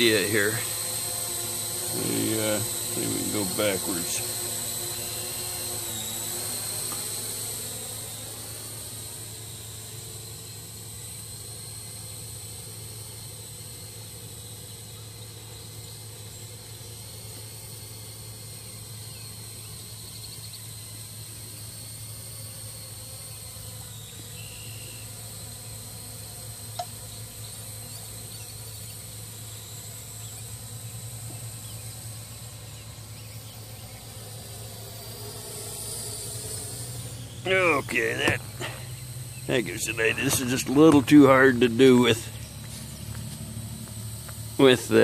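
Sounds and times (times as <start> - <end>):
drone rotors humming and whining: 0.0 - 45.0.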